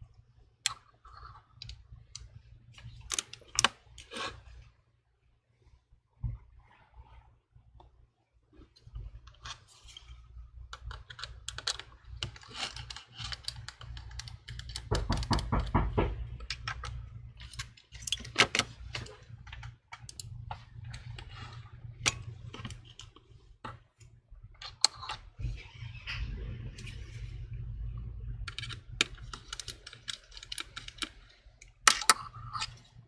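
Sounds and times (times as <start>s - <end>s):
small clicks and taps on hard surface: 10.7s - 21.3s, 28.5s - 32.8s.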